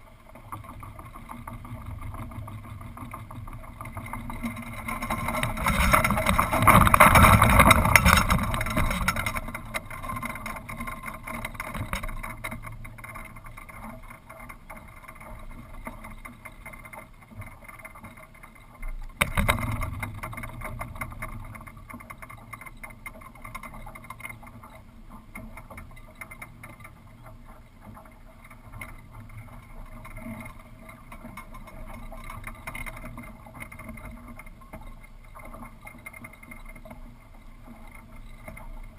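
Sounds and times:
wind rushing over camera: 0:01.7 - 0:12.5.

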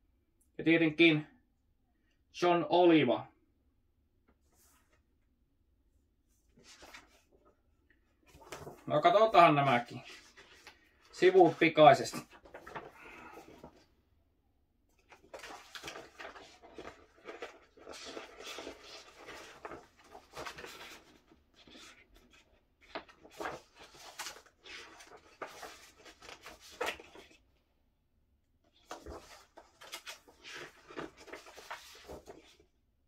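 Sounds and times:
paper pages rustling: 0:06.4 - 0:07.5, 0:08.2 - 0:13.9, 0:14.9 - 0:27.4, 0:28.7 - 0:32.7.

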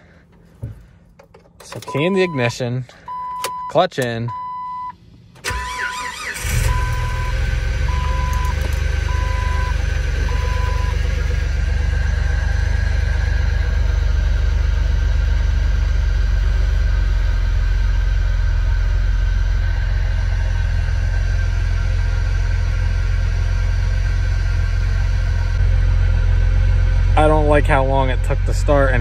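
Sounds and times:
warning chime beeping: 0:01.9 - 0:04.9
car engine idling: 0:05.0 - 0:29.0.

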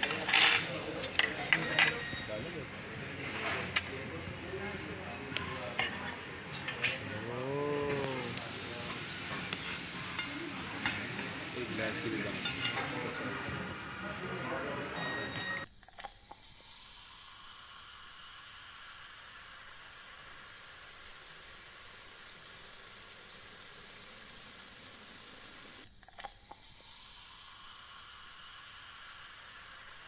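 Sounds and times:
soda pouring and fizzing: 0:15.9 - 0:30.0.

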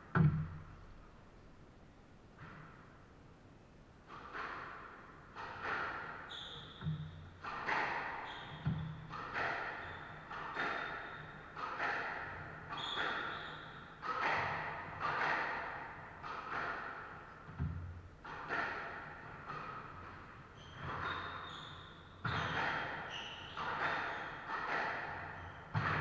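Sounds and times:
squash ball hits echoing: 0:04.1 - 0:21.3, 0:22.2 - 0:26.0
shoes squeaking on wooden floor: 0:20.6 - 0:24.3.

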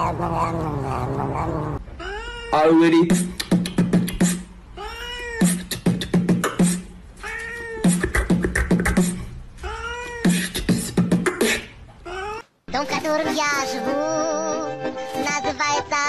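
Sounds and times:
beatbox clicks: 0:03.1 - 0:04.5, 0:05.4 - 0:06.9, 0:07.8 - 0:09.2, 0:10.2 - 0:11.8
beatbox kick-drum thumps: 0:03.1 - 0:04.5, 0:05.4 - 0:06.9, 0:07.8 - 0:09.2, 0:10.3 - 0:11.8
beatboxed meow calls: 0:03.2 - 0:09.1, 0:09.7 - 0:11.7.

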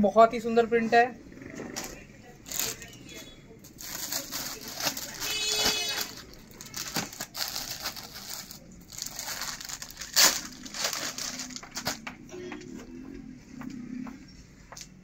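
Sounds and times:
plastic packets crinkling: 0:01.9 - 0:12.4.

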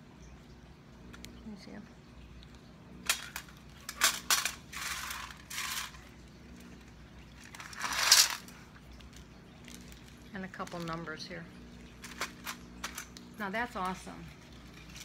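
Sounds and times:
shells rattling in metal tin: 0:03.0 - 0:06.1, 0:07.4 - 0:08.6, 0:12.0 - 0:13.2.

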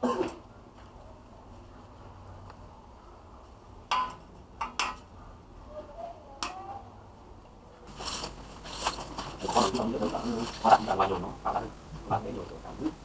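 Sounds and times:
rustling handling noise: 0:07.9 - 0:13.0.

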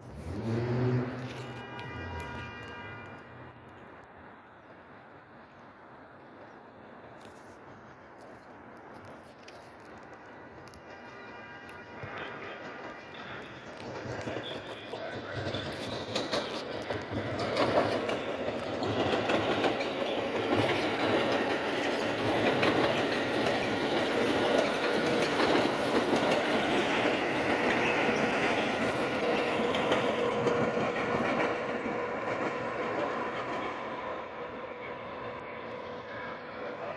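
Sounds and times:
train rumble: 0:00.0 - 0:36.9
train wheels clicking over rail joints: 0:06.2 - 0:36.9.

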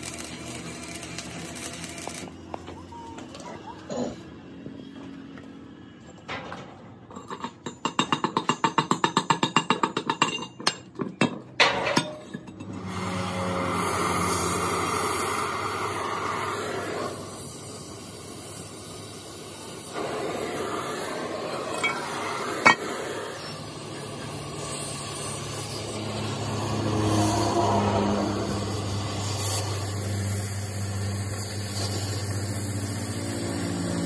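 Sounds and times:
torch flame hissing: 0:00.0 - 0:02.4, 0:12.8 - 0:34.0.

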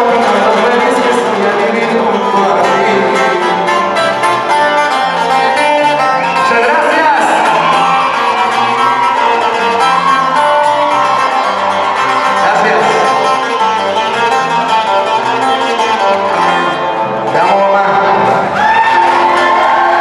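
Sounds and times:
man singing into microphone: 0:00.0 - 0:03.8
acoustic band playing: 0:00.0 - 0:20.0.

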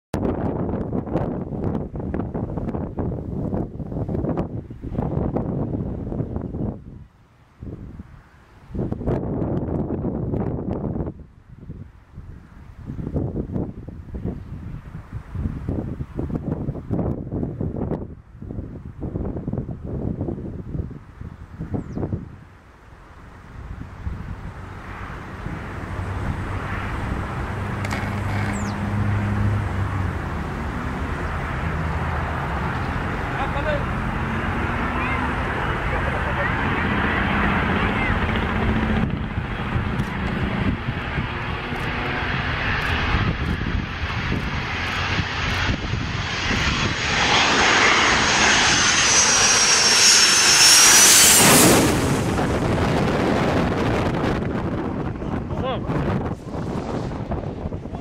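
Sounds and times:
jet airliner noise: 0:22.7 - 0:58.0.

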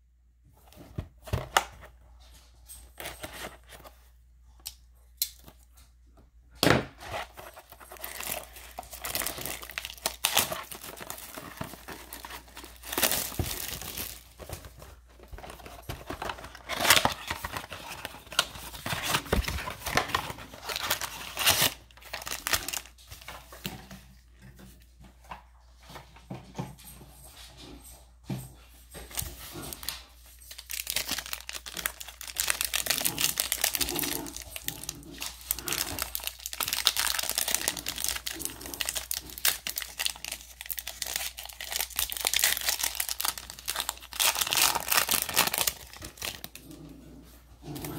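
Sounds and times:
plastic wrapping tearing and crinkling: 0:07.1 - 0:23.7, 0:29.1 - 0:46.7.

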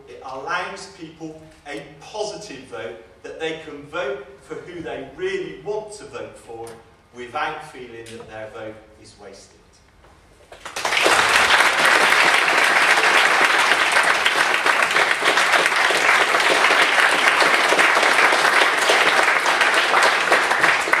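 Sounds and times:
audience applauding: 0:10.6 - 0:21.0.

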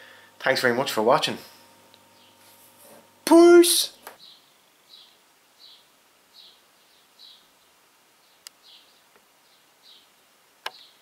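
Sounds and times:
faint high-pitched chirping: 0:04.2 - 0:11.0.

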